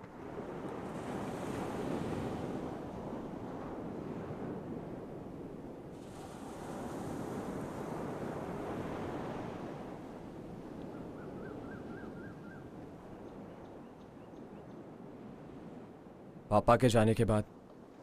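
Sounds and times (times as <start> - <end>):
sea surf: 0.0 - 11.6
wind: 0.0 - 18.0.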